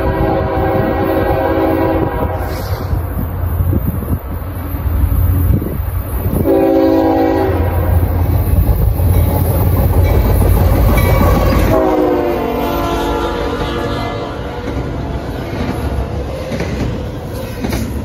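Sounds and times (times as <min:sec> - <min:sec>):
train air horn blasts: 0:00.0 - 0:03.0, 0:06.4 - 0:08.1, 0:11.3 - 0:15.1
diesel locomotives rumbling: 0:00.0 - 0:18.0.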